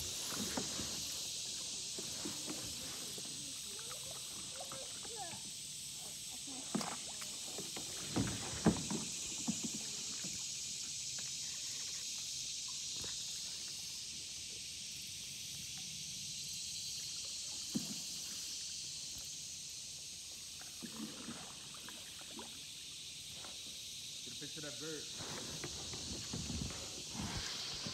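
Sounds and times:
insect chorus hissing: 0:00.0 - 0:27.9.

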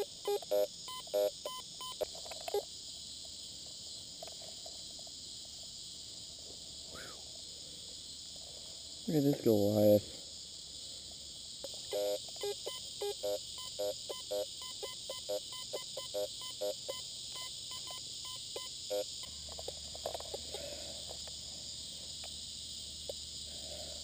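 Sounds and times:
metal detector beeps: 0:00.0 - 0:02.0, 0:11.9 - 0:19.0
insect trill: 0:00.0 - 0:24.0.

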